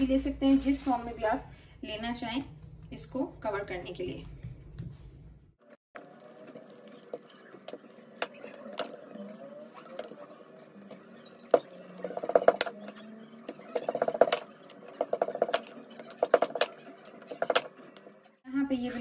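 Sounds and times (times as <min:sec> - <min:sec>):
rolling pin rolling dough: 0:06.0 - 0:18.2.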